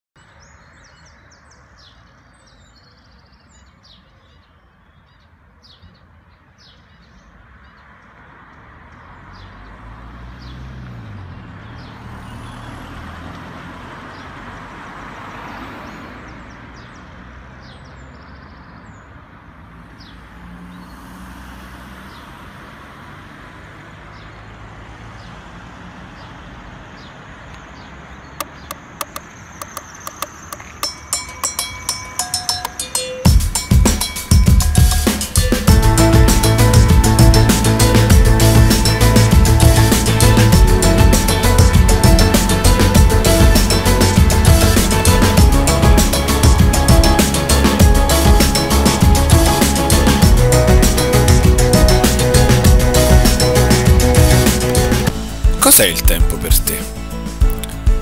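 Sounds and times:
car driving past: 8.3s - 17.5s, 19.6s - 27.0s
small birds chirping: 27.0s - 38.1s
sharp clicks: 28.4s - 30.9s.

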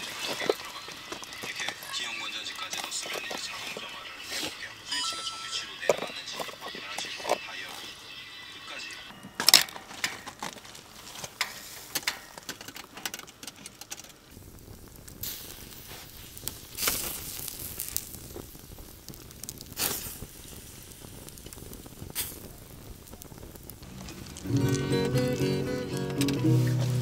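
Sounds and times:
campfire crackling and popping: 0.0s - 27.0s
acoustic guitar playing: 23.8s - 27.0s.

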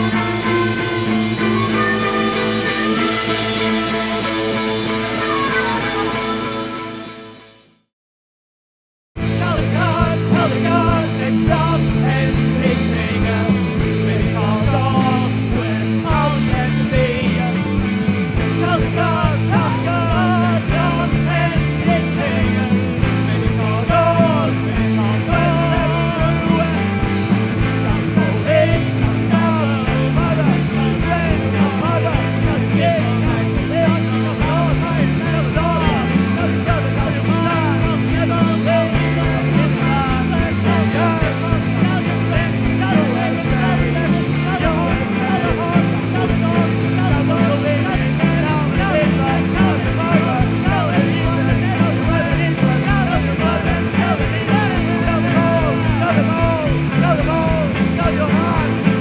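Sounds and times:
instrumental psychedelic rock band: 0.0s - 7.5s, 9.2s - 59.0s.

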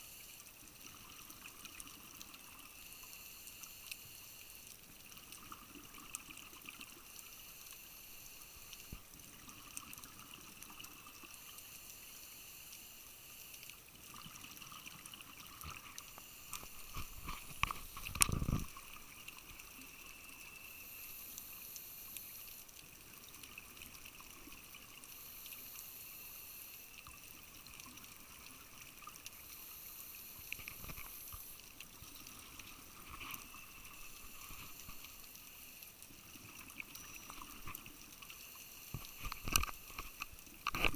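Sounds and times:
faint underwater hiss: 0.0s - 40.9s
small underwater clicks: 0.0s - 40.9s
diver exhaling bubbles: 16.8s - 18.8s.

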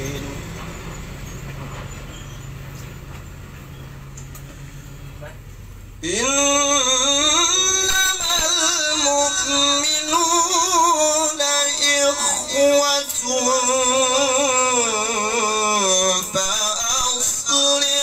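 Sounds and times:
man chanting melodic recitation: 0.0s - 0.6s, 6.0s - 18.0s.

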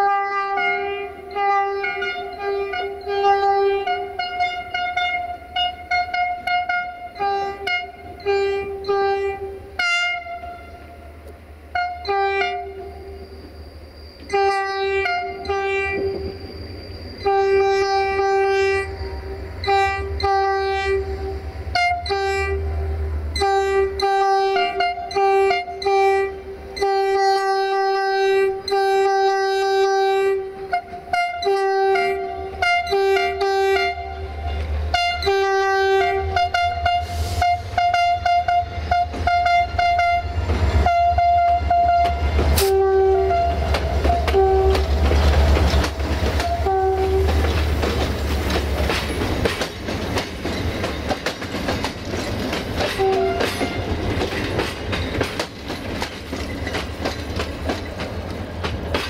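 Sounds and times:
two-tone locomotive horn blasts: 0.0s - 13.4s, 14.2s - 16.4s, 17.2s - 45.5s, 46.1s - 47.6s, 52.8s - 54.2s
low rumble of train: 0.0s - 59.0s.

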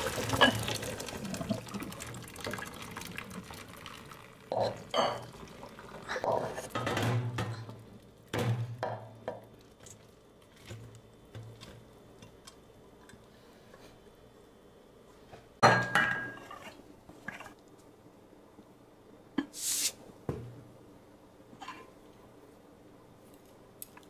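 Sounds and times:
dishes and pots clinking: 0.3s - 0.8s, 4.5s - 5.4s, 6.1s - 7.8s, 8.4s - 9.5s, 15.6s - 17.5s.

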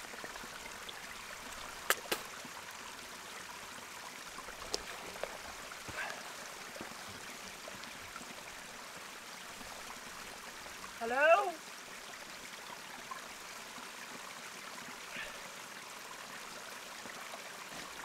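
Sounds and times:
water trickling: 0.0s - 18.0s
sharp clicks: 1.8s - 2.3s.

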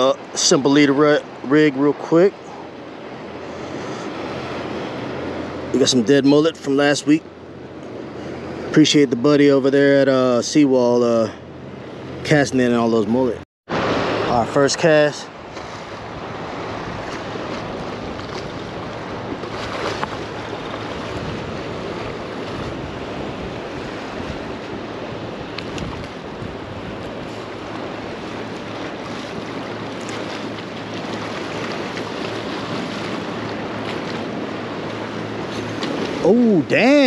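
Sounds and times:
surf washing: 0.0s - 37.0s
wind blowing over microphone: 13.7s - 37.0s.

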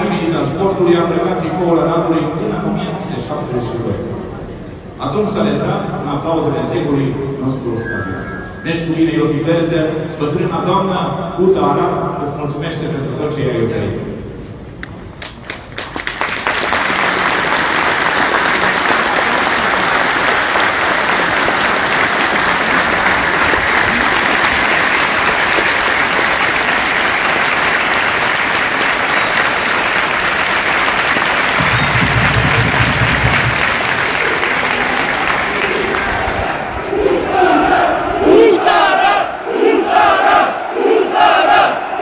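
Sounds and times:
stadium crowd applauding: 14.8s - 36.9s.

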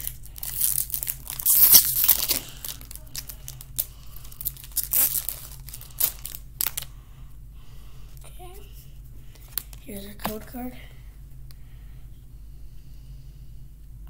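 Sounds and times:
foil wrapper crinkling: 0.0s - 6.9s
foil wrapper tearing: 0.0s - 6.9s.

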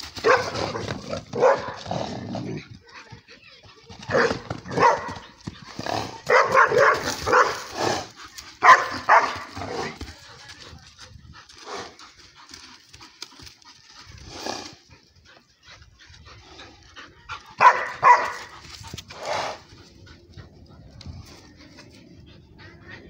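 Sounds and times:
small dog barking: 0.2s - 0.8s, 1.4s - 1.8s, 4.1s - 5.2s, 6.3s - 7.7s, 8.6s - 9.5s, 17.6s - 18.4s.

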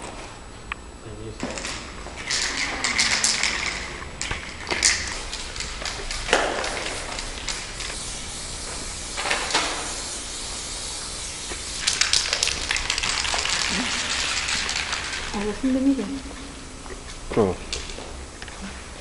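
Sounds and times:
spray paint can hissing: 4.7s - 15.8s.

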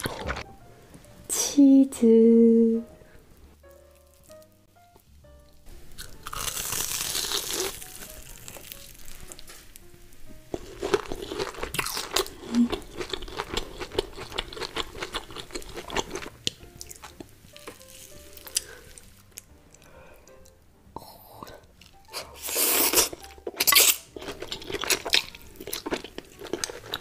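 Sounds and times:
soft background music: 0.0s - 27.0s
crunchy chewing of fried food: 5.9s - 9.8s, 10.5s - 20.6s, 21.6s - 27.0s.

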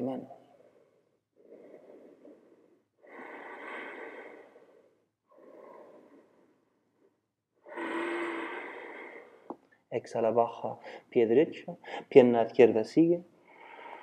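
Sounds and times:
person breathing heavily: 0.4s - 9.6s, 11.8s - 12.1s, 13.4s - 14.0s.

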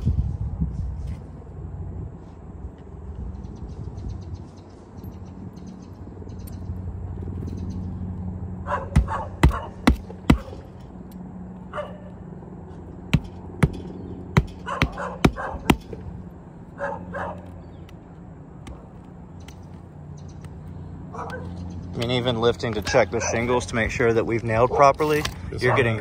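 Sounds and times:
dog barking: 8.6s - 9.8s, 11.7s - 12.2s, 14.6s - 15.8s, 16.8s - 17.5s, 21.1s - 21.6s, 23.1s - 23.4s, 24.6s - 25.0s, 25.6s - 26.0s.

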